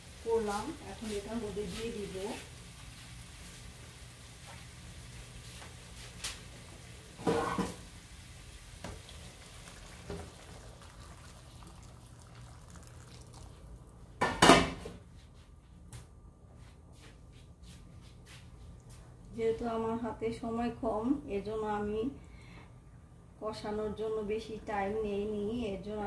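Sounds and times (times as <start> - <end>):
water poured into hot pan: 7.1 - 14.2.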